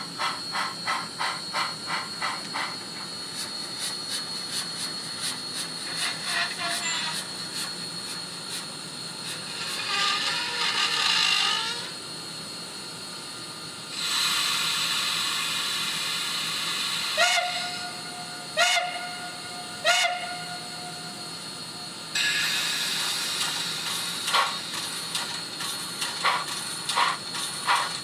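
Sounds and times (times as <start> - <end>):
steam hiss: 0.0 - 10.9, 13.9 - 28.0
steam whistle blasts: 17.1 - 21.2.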